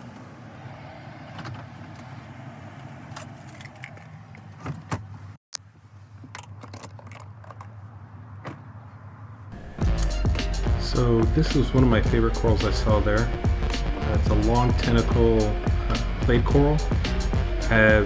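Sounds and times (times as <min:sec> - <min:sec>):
handling clicks and knocks: 0:06.2 - 0:07.8
steady low hum: 0:09.6 - 0:18.0.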